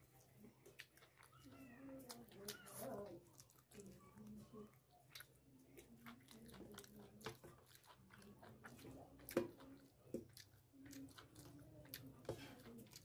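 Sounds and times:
person chewing and biting: 0:05.0 - 0:13.0.

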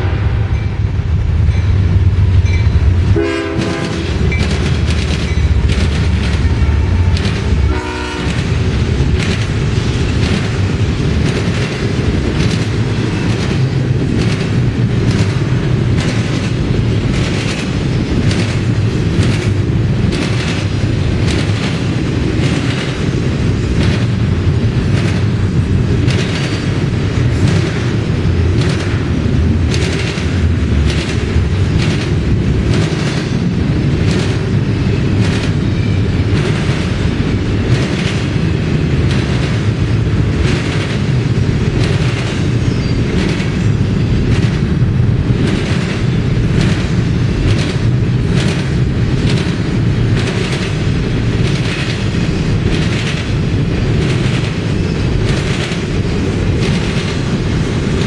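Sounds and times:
freight train rumble: 0:00.0 - 0:58.0
wheels clacking over rail joints: 0:01.4 - 0:58.0.

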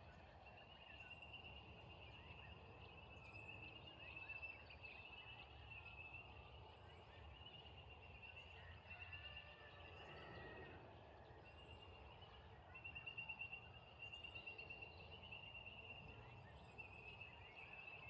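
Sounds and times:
faint bird chirps: 0:00.0 - 0:18.0.

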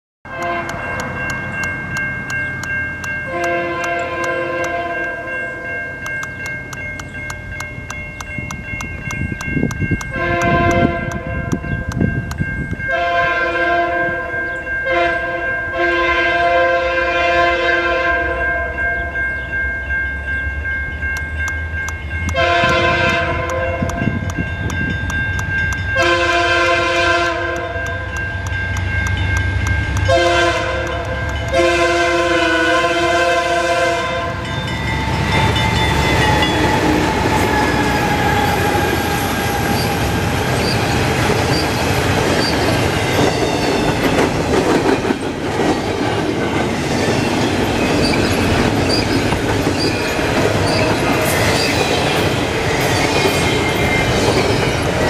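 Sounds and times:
train air horn blasts: 0:00.3 - 0:00.9, 0:03.3 - 0:05.3, 0:10.1 - 0:11.6, 0:12.9 - 0:18.8, 0:22.3 - 0:24.1, 0:26.0 - 0:28.1, 0:30.1 - 0:40.2
crossing bell dinging: 0:00.3 - 0:55.0
low train rumble: 0:00.3 - 0:55.0.

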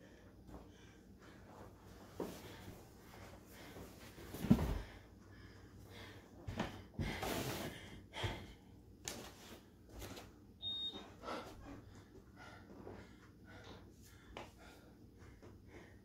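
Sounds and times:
high beep: 0:10.6 - 0:11.0
woman breathing hard: 0:11.1 - 0:16.0.

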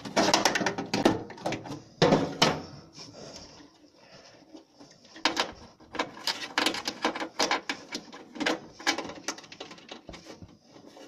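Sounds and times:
wires being handled: 0:03.3 - 0:11.0.

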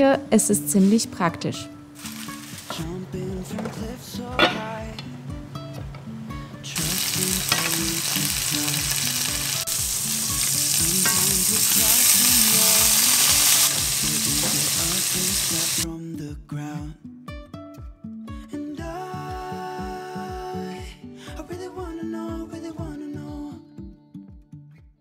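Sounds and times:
background music with steady beat: 0:00.0 - 0:25.0
pork sizzling in a frying pan: 0:06.8 - 0:15.8.

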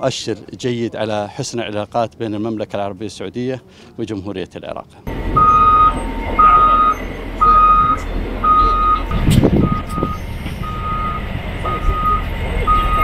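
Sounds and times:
reversing alarm beeping: 0:05.1 - 0:13.0
wheel loader engine running: 0:05.1 - 0:13.0.

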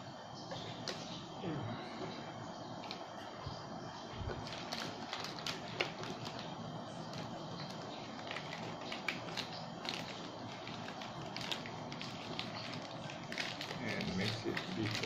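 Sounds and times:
plastic bag crinkling: 0:04.2 - 0:15.0.

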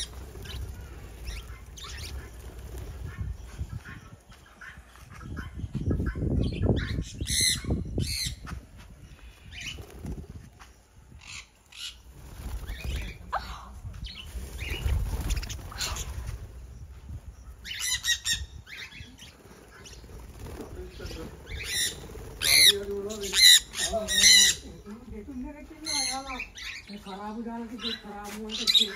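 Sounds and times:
parrots flapping wings: 0:00.0 - 0:04.0, 0:09.5 - 0:10.8, 0:11.7 - 0:13.4, 0:14.0 - 0:16.6, 0:19.1 - 0:24.6
parrots squawking: 0:17.6 - 0:20.0, 0:21.0 - 0:24.7.

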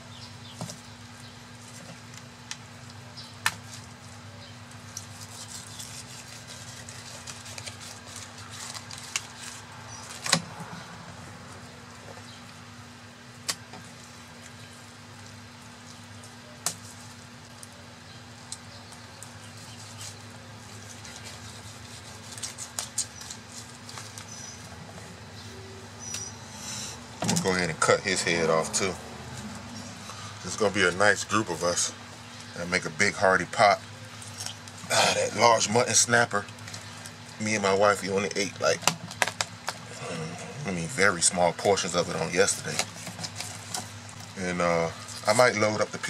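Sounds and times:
steady low hum: 0:00.0 - 0:46.0.

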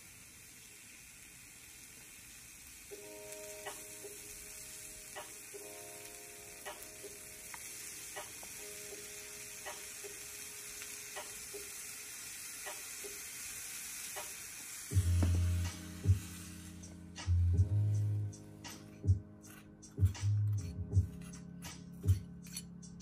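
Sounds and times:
food sizzling in a frying pan: 0:00.0 - 0:18.2
low music notes: 0:14.9 - 0:23.0.

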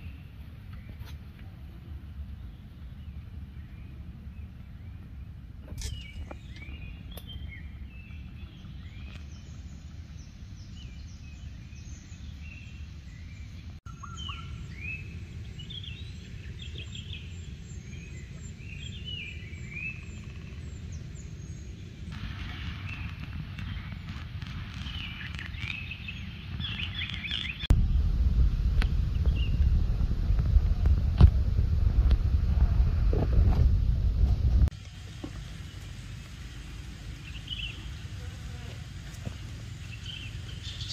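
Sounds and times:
songbirds chirping: 0:00.0 - 0:28.1, 0:34.7 - 0:40.9
low steady rumble: 0:00.0 - 0:40.9
steady hiss: 0:22.0 - 0:40.9.

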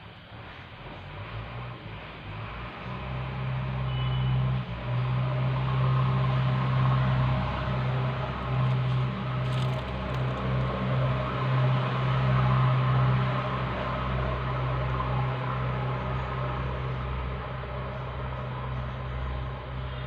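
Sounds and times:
low engine hum: 0:00.0 - 0:20.0.

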